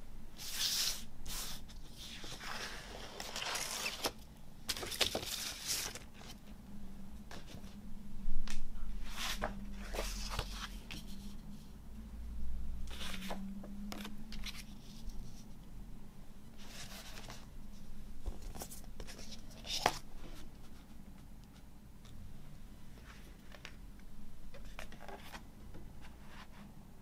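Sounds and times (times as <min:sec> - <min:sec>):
faint low hum: 0:00.0 - 0:27.0
glossy paper rustling and sliding: 0:09.0 - 0:11.7, 0:12.8 - 0:15.6.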